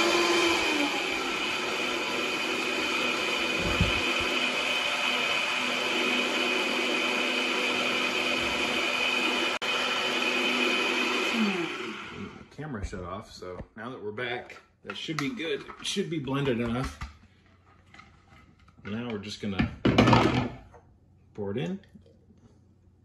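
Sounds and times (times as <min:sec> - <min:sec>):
blender motor running: 0:00.0 - 0:12.5.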